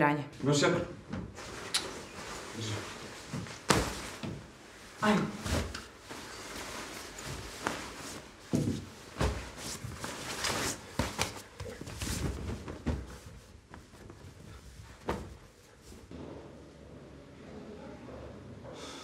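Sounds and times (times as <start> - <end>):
padded jacket rustling: 1.4 - 16.1.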